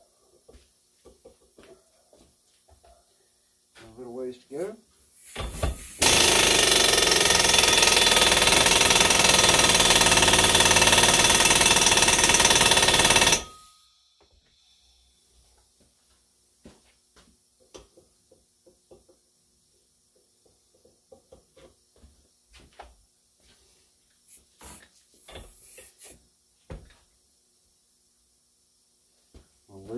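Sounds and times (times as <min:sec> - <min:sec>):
air impact wrench running: 0:05.2 - 0:13.7.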